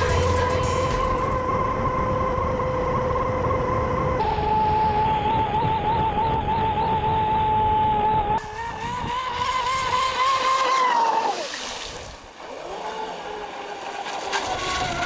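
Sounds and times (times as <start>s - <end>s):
rc boat motor whine: 0.0s - 15.0s
water hissing: 9.5s - 14.7s.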